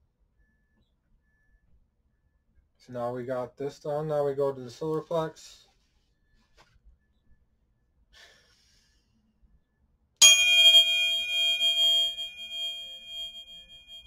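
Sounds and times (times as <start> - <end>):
tuning fork ringing: 10.2 - 14.0.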